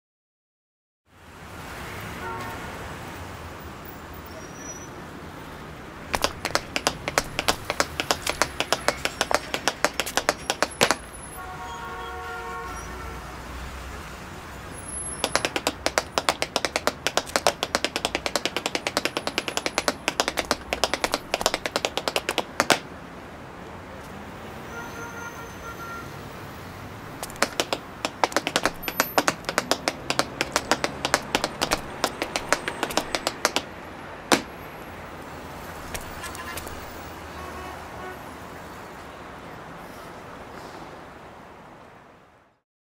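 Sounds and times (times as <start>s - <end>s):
low traffic rumble: 5.2s - 11.5s, 13.6s - 24.6s, 26.6s - 38.0s
hard shoes clicking on stone: 6.1s - 11.1s, 15.2s - 22.9s, 27.2s - 33.7s, 34.3s - 34.6s, 35.9s - 36.9s.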